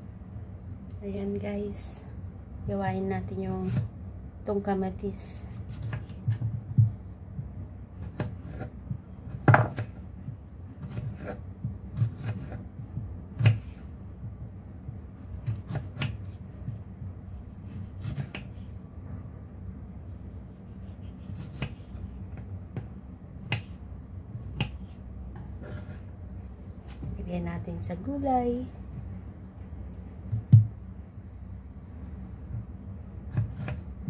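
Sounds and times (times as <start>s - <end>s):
knife slicing a tomato: 5.5s - 7.0s, 8.0s - 10.0s, 10.8s - 12.7s, 13.4s - 14.0s, 15.3s - 18.8s, 20.2s - 22.5s, 23.4s - 23.8s, 24.4s - 26.1s, 32.6s - 33.9s
knife knocking on cutting board: 9.4s - 9.8s.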